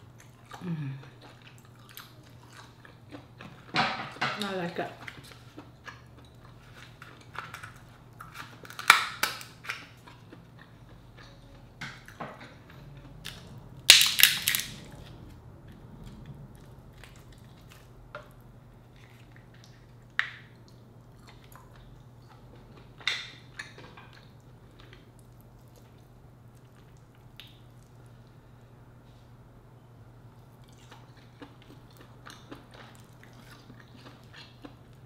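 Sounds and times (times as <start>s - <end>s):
crab shell cracking: 7.3s - 9.9s, 13.3s - 14.9s.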